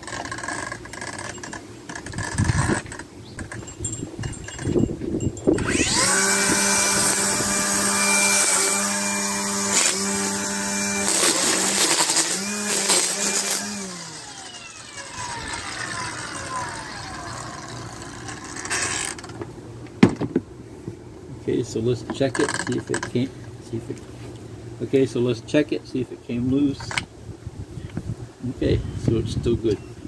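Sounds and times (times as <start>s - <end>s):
string trimmer whining: 0.0s - 4.8s, 5.4s - 19.6s.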